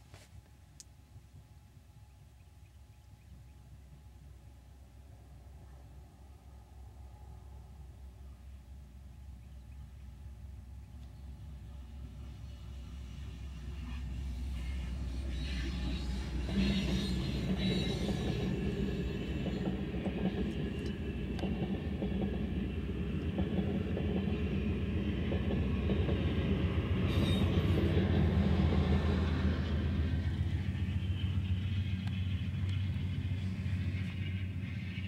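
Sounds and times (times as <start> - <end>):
train wheels rumbling on rails: 10.2 - 35.0.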